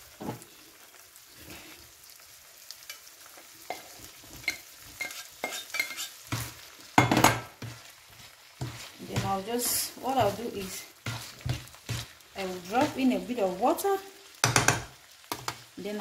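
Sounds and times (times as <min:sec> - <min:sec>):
filling sizzling in frying pan: 0:00.0 - 0:16.0
spatula scraping pan: 0:03.6 - 0:15.6
utensil clattering on pan: 0:07.0 - 0:07.8, 0:14.4 - 0:15.6.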